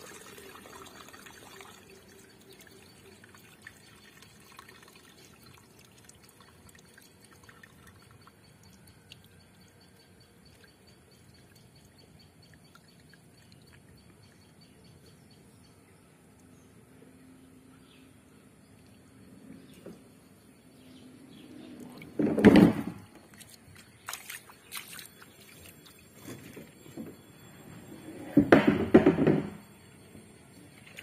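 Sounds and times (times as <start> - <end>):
water dripping: 0.0 - 14.6, 23.3 - 26.2
water trickling from tank: 0.0 - 14.7.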